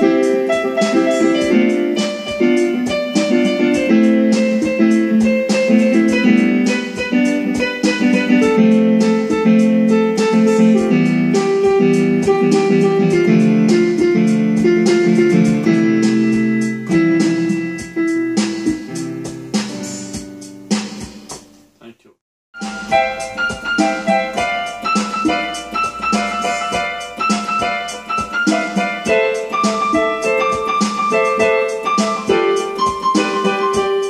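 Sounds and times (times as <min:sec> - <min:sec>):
plucked guitar music: 0:00.0 - 0:19.7, 0:22.6 - 0:34.0.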